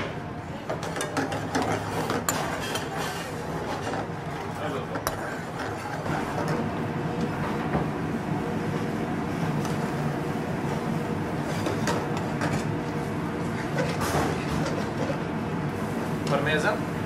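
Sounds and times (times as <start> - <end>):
kitchen rumbling hum: 0.0 - 17.0
metal spoon scraping in pan: 0.7 - 6.8, 11.3 - 15.2.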